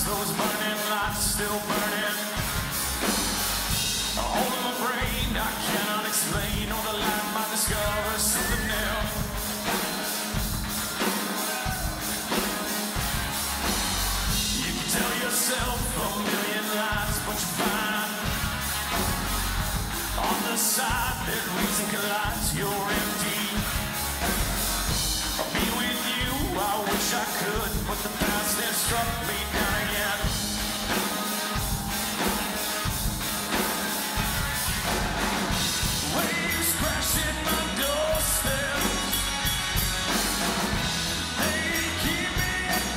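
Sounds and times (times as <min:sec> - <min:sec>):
man singing: 0:00.0 - 0:02.5, 0:03.9 - 0:09.6, 0:14.3 - 0:18.5, 0:19.9 - 0:24.0, 0:25.2 - 0:31.0, 0:35.6 - 0:39.5, 0:41.2 - 0:42.9
live rock band playing: 0:00.0 - 0:42.9.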